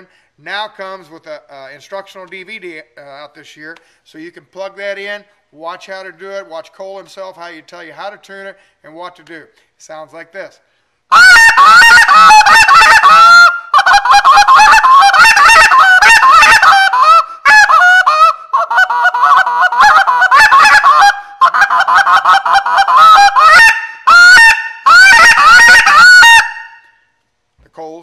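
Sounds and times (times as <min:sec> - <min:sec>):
goose call clucks and honks: 0:11.1 - 0:26.9.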